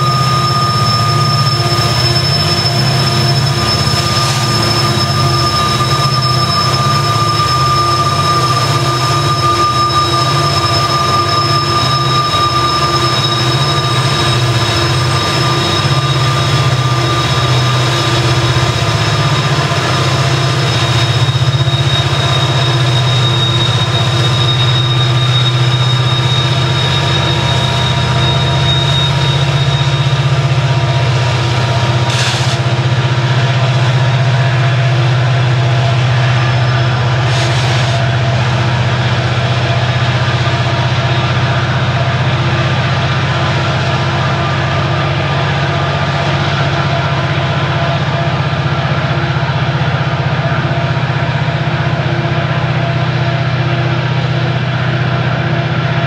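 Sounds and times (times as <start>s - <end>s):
steady high-pitched tones: 0.0s - 41.5s
diesel locomotive engines droning: 0.0s - 56.0s.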